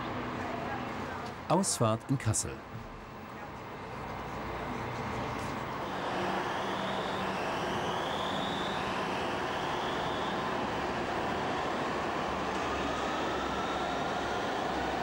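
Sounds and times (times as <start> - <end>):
tram wheels rumbling on rail: 2.8 - 15.0
faint gliding whines: 3.3 - 15.0.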